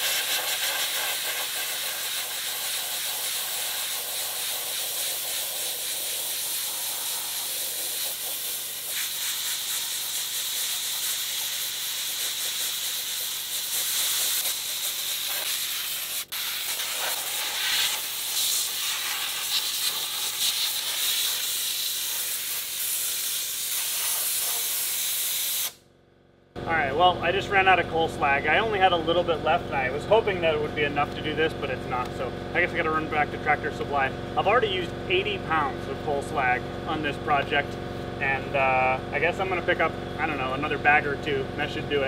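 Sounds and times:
sandblaster hissing: 0.0 - 25.8.

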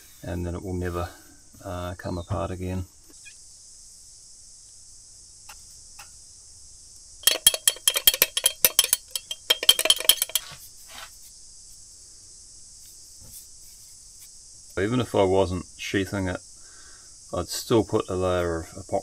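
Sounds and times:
stirrer clinking against glass jar: 7.2 - 10.6.

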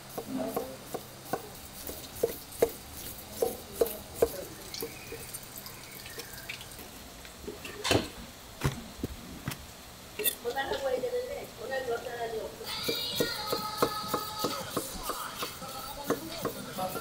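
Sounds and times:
knife tapping wooden cutting board: 12.9 - 17.0.

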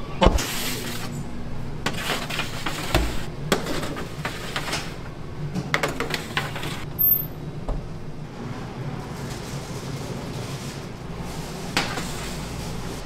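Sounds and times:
metal baking trays clattering: 9.1 - 13.0.

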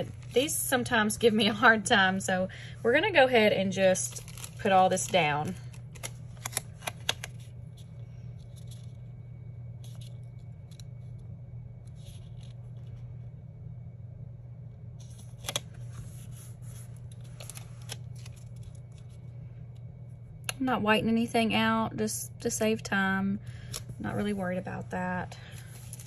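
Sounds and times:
low steady hum: 0.0 - 26.0
stickers peeling and rustling: 3.8 - 9.1, 15.0 - 19.3, 25.5 - 26.0.

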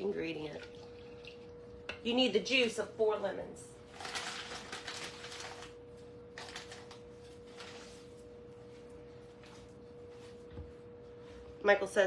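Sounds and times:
faint steady hum: 0.0 - 12.0
plastic bag rustling: 3.9 - 8.3.

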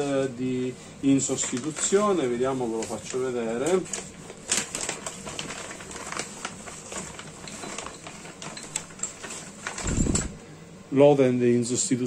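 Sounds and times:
plastic bag crinkling: 1.3 - 10.4.

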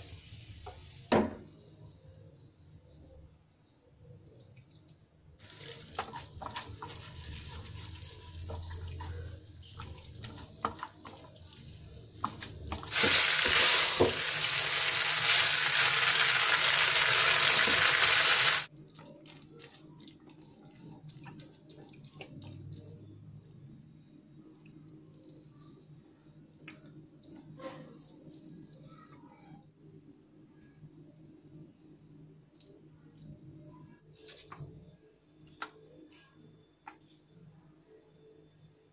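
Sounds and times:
spaghetti tossed in a pan: 5.4 - 14.2.

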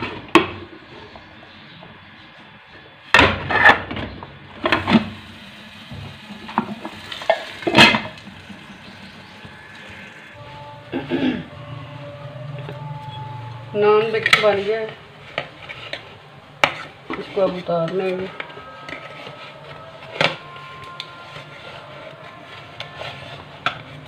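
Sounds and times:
metal pot lid clanking: 6.5 - 8.2.

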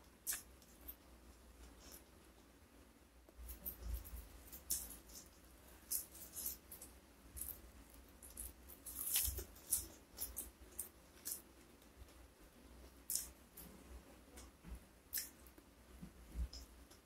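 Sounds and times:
crisp chewing crunches: 3.5 - 11.5.

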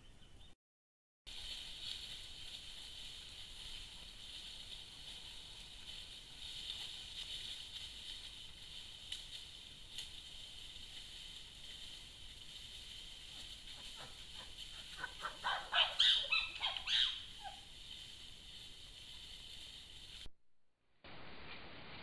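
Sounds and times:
chimpanzee calls: 13.7 - 17.6.

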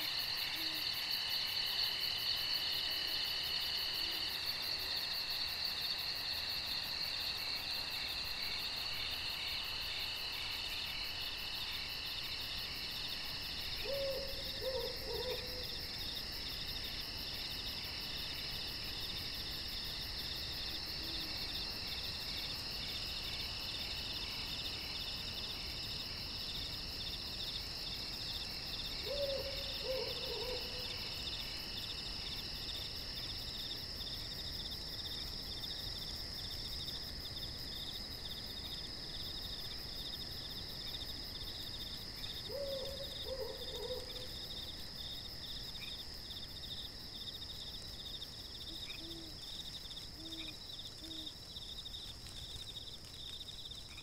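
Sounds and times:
insect chorus with crickets trilling: 0.0 - 54.0
faint animal call with falling notes: 13.8 - 15.7.

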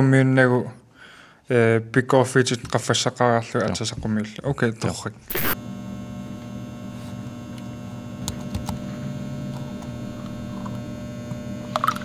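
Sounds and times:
steady electrical hum: 5.3 - 12.0.

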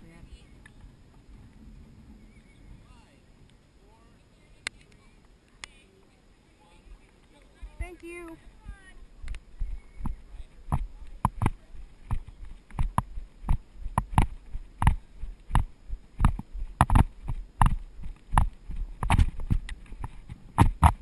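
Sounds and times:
horse hoofbeats on hard ground: 9.6 - 21.0.

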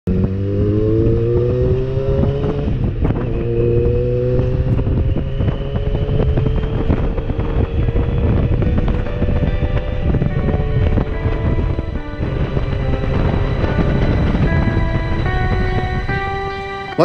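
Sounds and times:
motorcycle engine accelerating: 0.1 - 17.0
wind buffeting microphone: 0.1 - 17.0.

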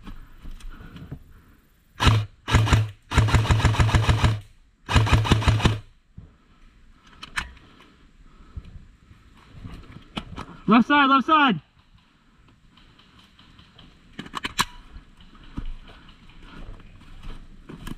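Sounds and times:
airsoft rifle full-auto bursts: 2.0 - 5.9.

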